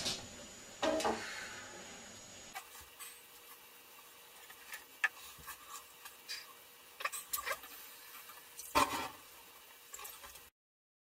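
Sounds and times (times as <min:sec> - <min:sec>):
tongs scraping metal pot rim: 0:04.4 - 0:09.2.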